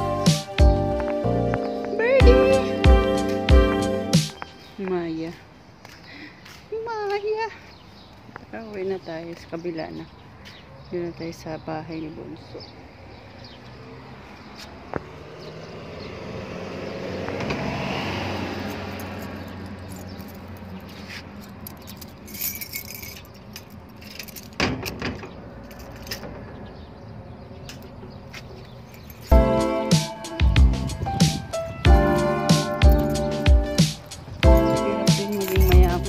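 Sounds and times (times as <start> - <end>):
car passing: 12.6 - 22.8
metallic rattles and clicks: 19.0 - 26.4, 34.0 - 36.0.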